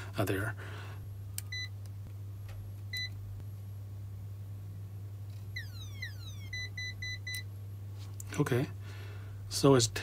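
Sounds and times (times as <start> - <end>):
steady low hum: 0.0 - 10.0
tester beeping: 5.6 - 7.4.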